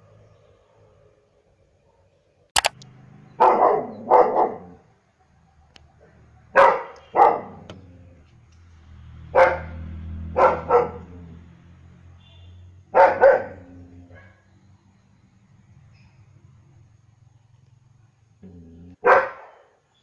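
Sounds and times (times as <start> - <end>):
sharp click: 2.6 - 2.9
dog barking: 3.4 - 4.9, 6.5 - 7.7, 9.3 - 11.2, 12.9 - 14.4, 18.9 - 19.8.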